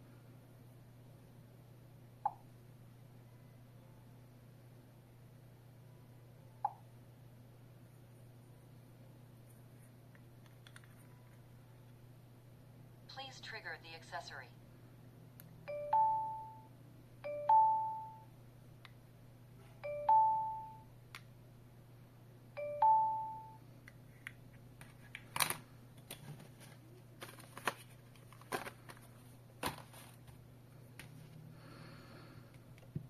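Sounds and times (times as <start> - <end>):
ding-dong alarm chime: 15.7 - 18.3, 19.8 - 20.9, 22.6 - 23.6.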